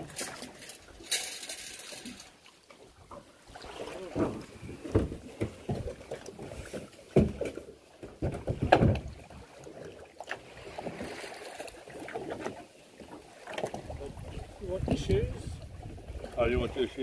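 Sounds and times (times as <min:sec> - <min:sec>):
knocking and bumping in boat: 0:03.9 - 0:09.4, 0:13.5 - 0:16.4.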